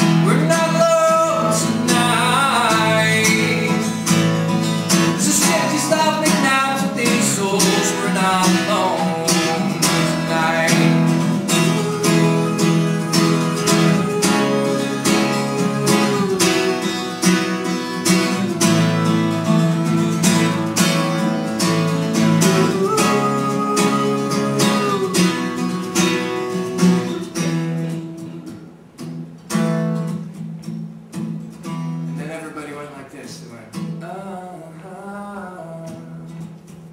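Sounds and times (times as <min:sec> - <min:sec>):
acoustic guitar strumming: 0:00.0 - 0:36.9.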